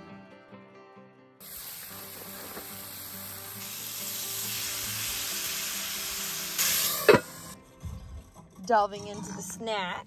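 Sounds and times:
food sizzling in a hot pan: 1.4s - 7.5s.

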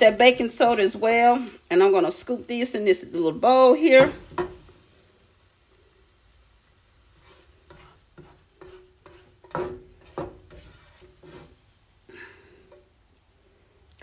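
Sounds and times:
spatula scraping a frying pan: 3.8s - 4.9s, 6.9s - 12.0s
spatula tapping: 4.0s - 4.7s, 7.2s - 11.6s.

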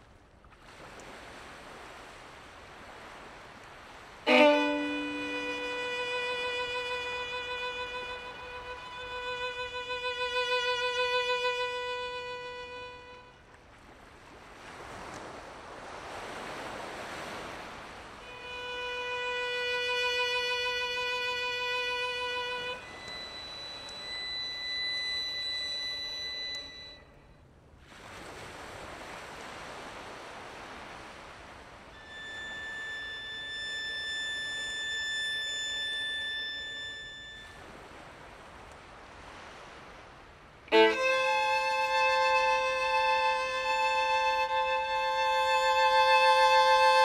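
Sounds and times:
solo violin long notes: 3.6s - 13.6s, 18.2s - 27.2s, 31.9s - 37.9s, 40.6s - 47.0s.

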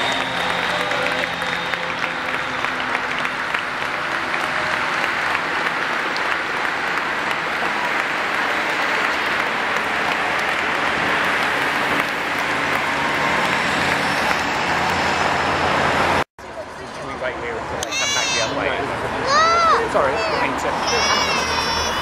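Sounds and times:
crowd clapping: 0.0s - 15.6s.

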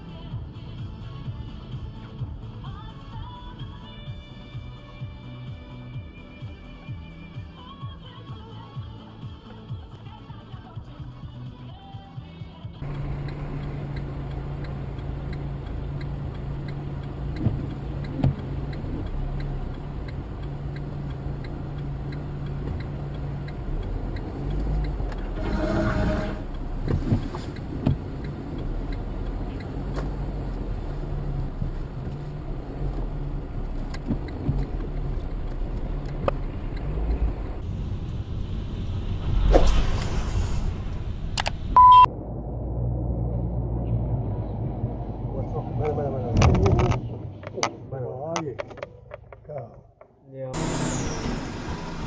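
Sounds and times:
car engine and road hum: 0.0s - 52.0s
clicks and knocks: 46.4s - 50.2s
loud burst: 50.6s - 52.0s.

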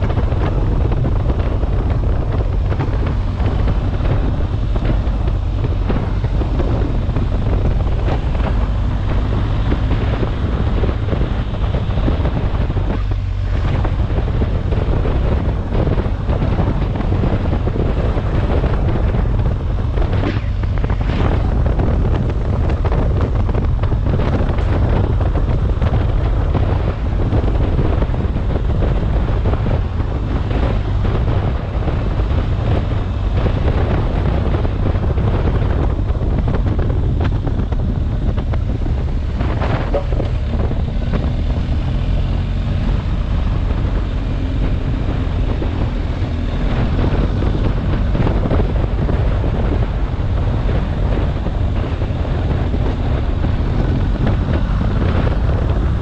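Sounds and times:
motorcycle engine running: 0.0s - 56.0s
wind noise on microphone: 0.0s - 56.0s.

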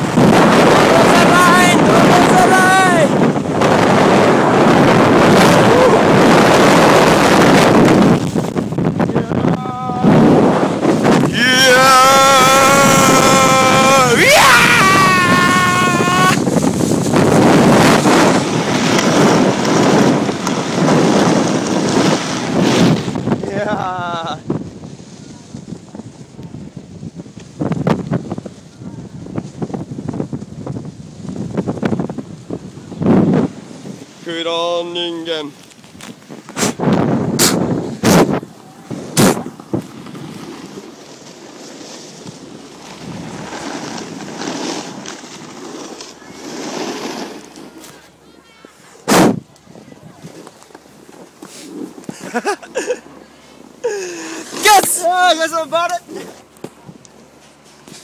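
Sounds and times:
wind buffeting microphone: 0.0s - 46.4s
snow hissing under skis: 12.9s - 25.8s, 36.4s - 48.2s, 50.2s - 56.4s
loud thump: 49.0s - 49.4s.

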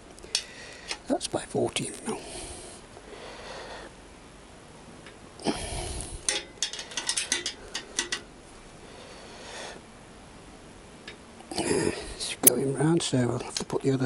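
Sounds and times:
spanner clicking on metal: 6.2s - 8.3s.

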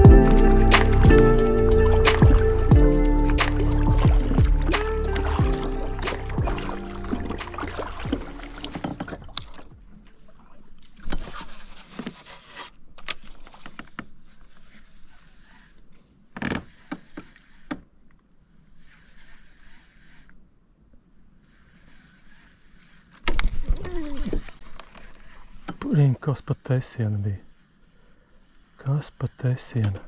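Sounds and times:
background music: 0.0s - 9.4s
kayak knocks and splashes: 1.9s - 10.0s.

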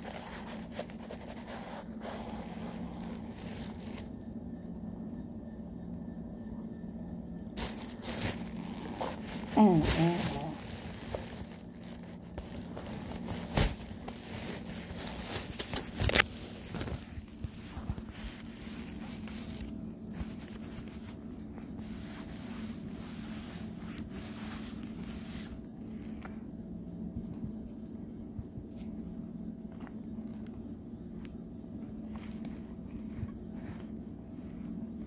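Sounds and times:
plastic packaging crinkling: 0.0s - 4.1s, 7.6s - 26.3s
steady low hum: 0.0s - 35.0s.

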